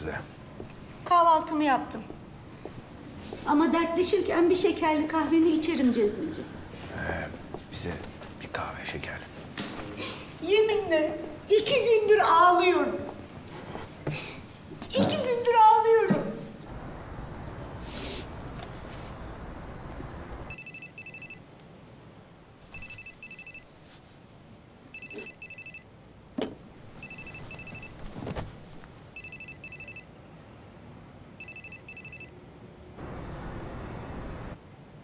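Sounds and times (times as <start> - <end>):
telephone ringing: 20.5 - 21.4, 22.8 - 23.7, 24.9 - 25.9, 26.9 - 28.0, 29.2 - 30.1, 31.4 - 32.3.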